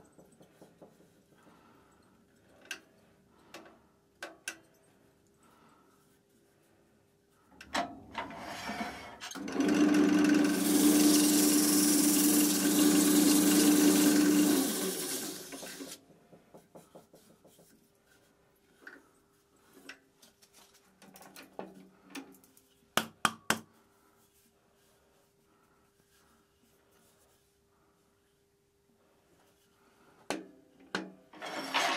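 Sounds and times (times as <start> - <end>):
wood lathe motor humming: 9.4 - 16.0.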